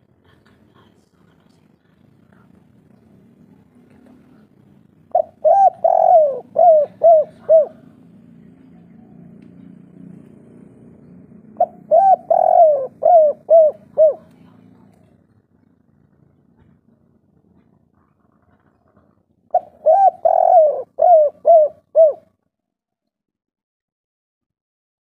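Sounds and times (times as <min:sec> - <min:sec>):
dove cooing: 0:04.2 - 0:08.0, 0:11.4 - 0:14.6, 0:19.5 - 0:22.4.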